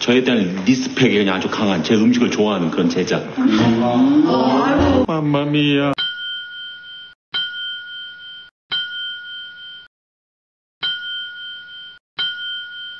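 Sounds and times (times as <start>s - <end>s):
two-tone bell ding: 6.0s - 9.9s, 10.8s - 12.9s.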